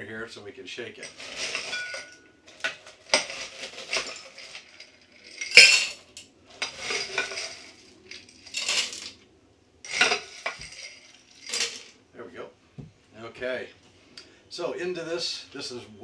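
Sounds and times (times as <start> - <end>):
ice cubes clattering in shaker: 1.0 - 6.0, 6.6 - 9.2, 9.9 - 11.9.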